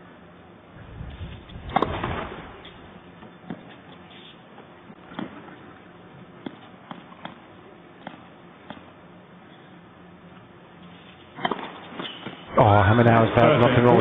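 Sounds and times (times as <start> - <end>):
tennis ball bouncing: 3.2 - 3.8, 4.9 - 5.8, 6.4 - 9.0, 11.4 - 12.4
tennis ball strikes: 6.4 - 7.4, 8.0 - 8.9, 11.4 - 12.4.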